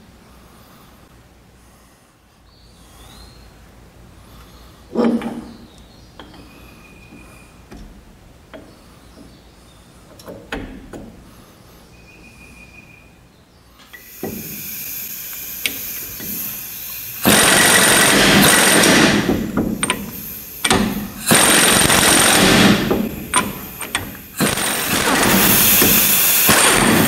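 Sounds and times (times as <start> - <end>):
pneumatic impact wrench hammering: 13.9 - 27.0.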